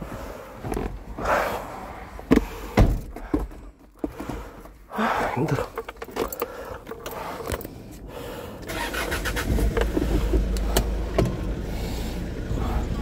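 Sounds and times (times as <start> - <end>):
car engine starting and running: 4.1 - 13.0.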